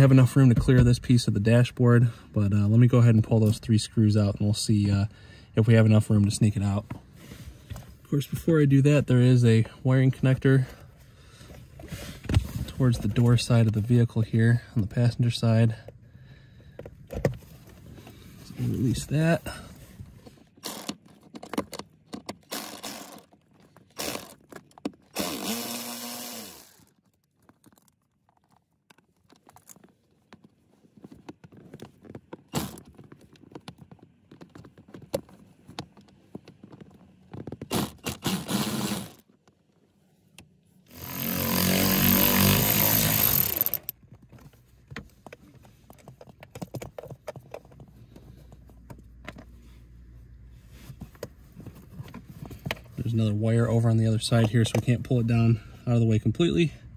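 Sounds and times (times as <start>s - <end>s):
cordless drill bursts: 25.2s - 26.8s, 37.7s - 39.2s, 40.9s - 43.9s.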